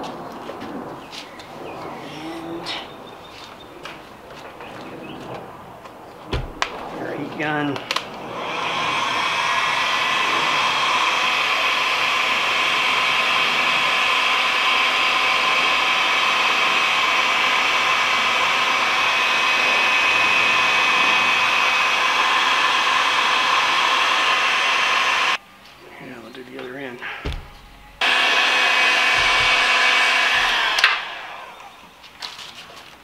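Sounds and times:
heat gun fan whirring: 0:06.3 - 0:25.4, 0:26.6 - 0:32.4.

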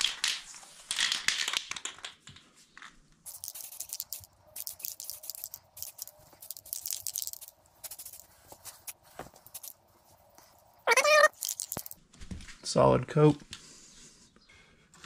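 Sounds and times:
spray paint can hissing: 0:03.3 - 0:09.8, 0:10.9 - 0:12.0.

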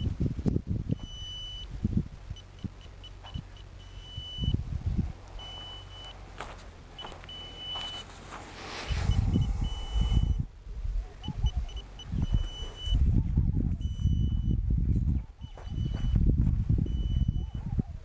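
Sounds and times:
wind rumbling on microphone: 0:00.0 - 0:07.4, 0:08.3 - 0:18.0
detector beeping: 0:00.9 - 0:04.6, 0:05.3 - 0:08.1, 0:08.9 - 0:10.5, 0:11.2 - 0:13.1, 0:13.7 - 0:14.6, 0:15.4 - 0:16.2, 0:16.8 - 0:17.7.

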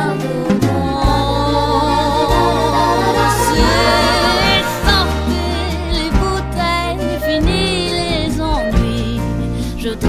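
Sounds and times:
song with vocals and beat: 0:00.0 - 0:09.4.

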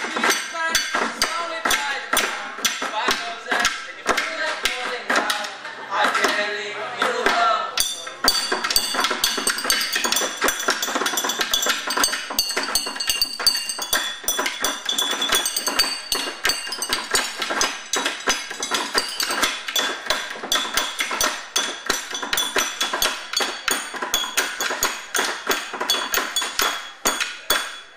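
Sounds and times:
drum hits: 0:07.8 - 0:27.9
metallic clinking strikes: 0:07.8 - 0:27.9.

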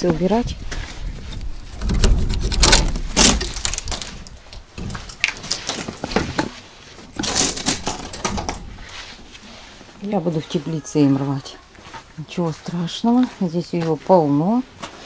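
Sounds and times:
rattling and rustling: 0:00.0 - 0:10.6
plastic greenhouse door clattering: 0:01.6 - 0:09.0.

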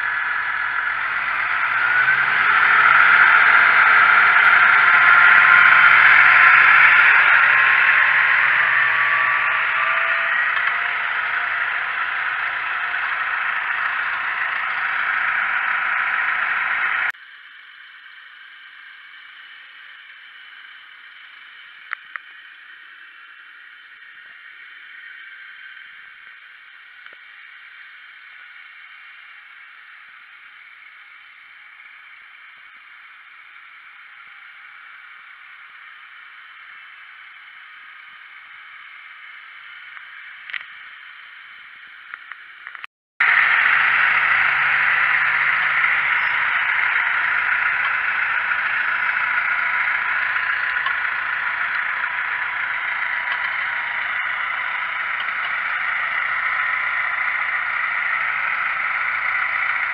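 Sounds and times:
tractor pulling plough: 0:00.0 - 0:17.2, 0:42.8 - 0:59.9
tractor droning: 0:00.0 - 0:17.3, 0:42.2 - 0:59.9.

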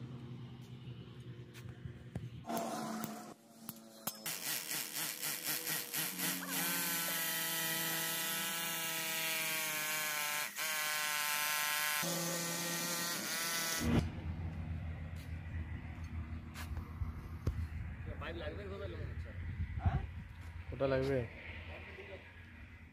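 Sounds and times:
electric drill boring into tile: 0:04.2 - 0:13.9.

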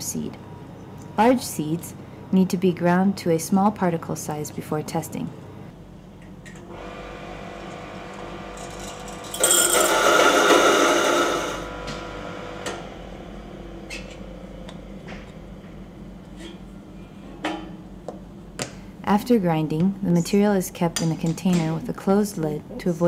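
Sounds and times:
electric mill motor humming: 0:06.6 - 0:13.7
seeds grinding loudly: 0:08.6 - 0:11.7.

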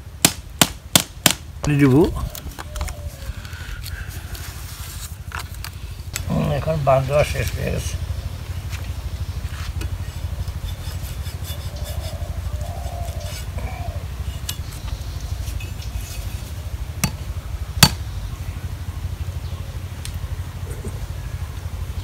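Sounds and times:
steady low rumble: 0:00.0 - 0:22.0
bamboo scraping and rubbing: 0:02.2 - 0:06.4, 0:08.6 - 0:17.2.

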